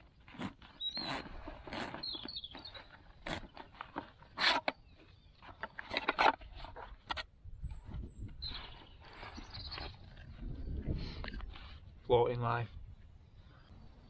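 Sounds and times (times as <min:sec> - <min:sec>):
canvas pouch rustling: 0:00.0 - 0:07.0
birds chirping: 0:00.0 - 0:14.0.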